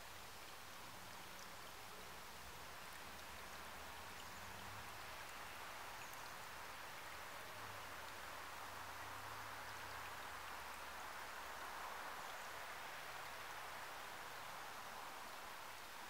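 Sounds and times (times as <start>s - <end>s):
stream trickling over stones: 0.0s - 16.0s.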